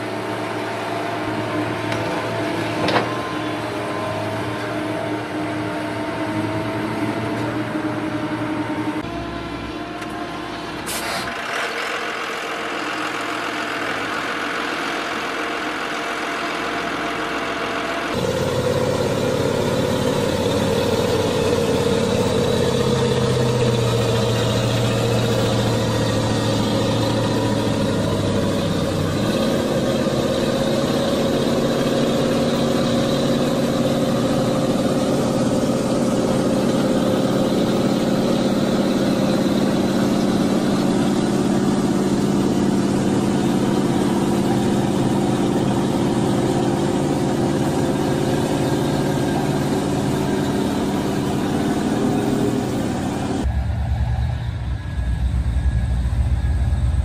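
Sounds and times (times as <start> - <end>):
diesel truck engine running: 0.0 - 57.0.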